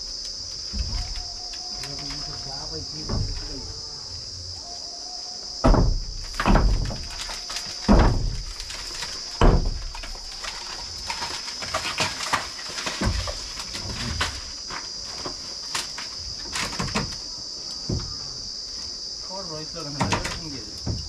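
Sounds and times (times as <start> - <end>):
high insect drone: 0.0 - 21.0
wooden door frame knocks and thuds: 0.7 - 1.4, 2.9 - 3.7, 5.6 - 10.2, 16.5 - 17.2, 17.8 - 18.2, 20.0 - 21.0.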